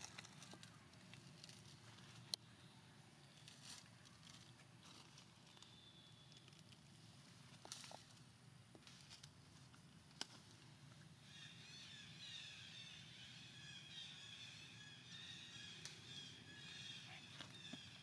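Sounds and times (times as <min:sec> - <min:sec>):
small birds chirping: 0:11.3 - 0:18.0.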